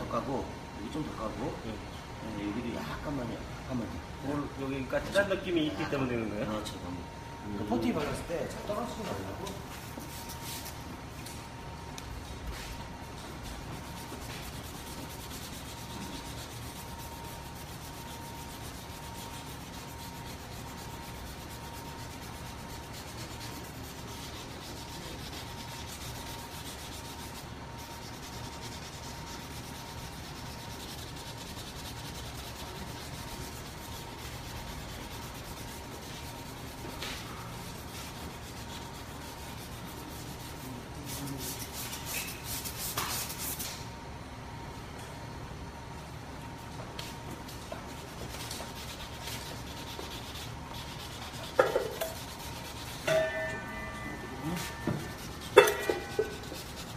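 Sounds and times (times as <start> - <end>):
sanding pad rubbing: 13.4 - 43.8, 47.9 - 53.1, 54.5 - 56.9.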